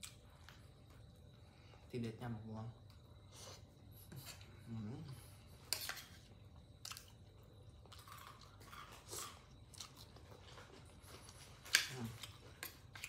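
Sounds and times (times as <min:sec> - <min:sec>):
person chewing and crunching: 0:06.6 - 0:13.0.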